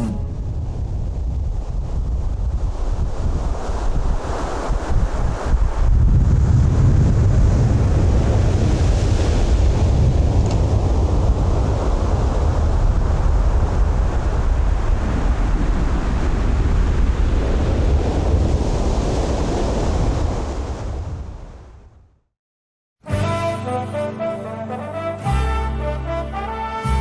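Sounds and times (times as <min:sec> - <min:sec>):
ocean surf breaking on beach: 0:00.0 - 0:21.2
wind buffeting microphone: 0:00.0 - 0:21.8.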